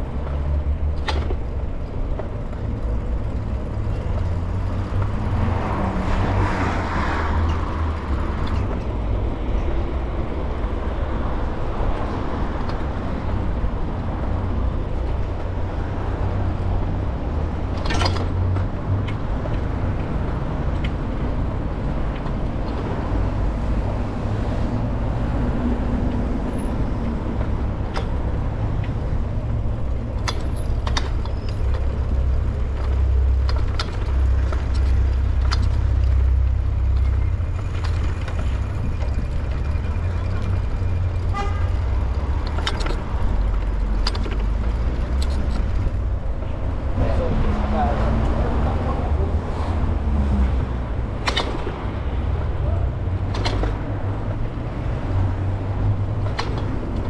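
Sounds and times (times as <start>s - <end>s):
road and tyre noise: 0.0s - 57.0s
sharp clicks and rattles: 7.4s - 24.0s, 25.9s - 46.8s, 50.3s - 57.0s.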